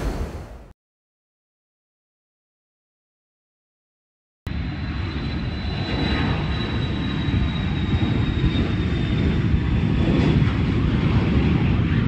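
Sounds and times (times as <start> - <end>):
jet engines rumbling and whining: 0.0 - 0.7, 4.5 - 12.0.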